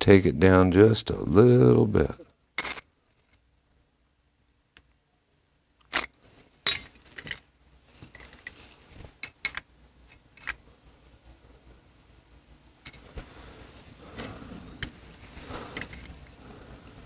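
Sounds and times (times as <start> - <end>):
small metal parts clicking: 2.6 - 3.4, 14.2 - 16.3.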